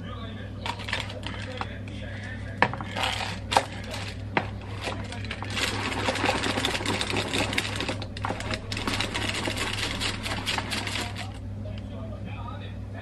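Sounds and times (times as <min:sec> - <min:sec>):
bowl rattling on baking tray: 0:00.6 - 0:01.8, 0:02.6 - 0:11.4.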